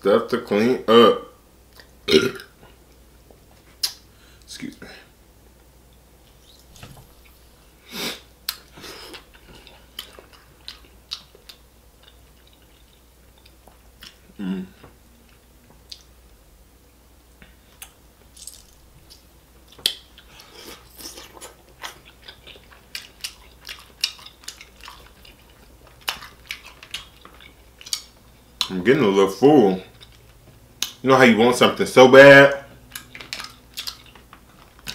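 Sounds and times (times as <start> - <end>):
chewing and biting: 17.8 - 28.8, 32.9 - 34.9
shellfish shells cracking: 18.3 - 19.2, 32.9 - 34.9.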